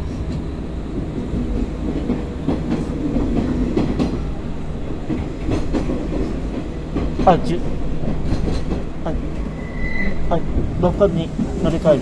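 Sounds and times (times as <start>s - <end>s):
train low rumble: 0.0s - 12.0s
wheel clacks over rail joints: 5.0s - 9.6s.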